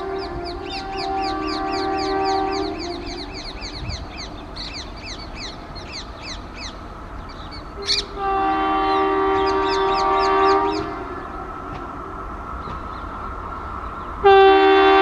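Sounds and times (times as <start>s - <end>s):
locomotive horn: 0.0s - 3.9s, 7.8s - 12.0s, 14.2s - 15.0s
bird chirping: 0.0s - 8.2s.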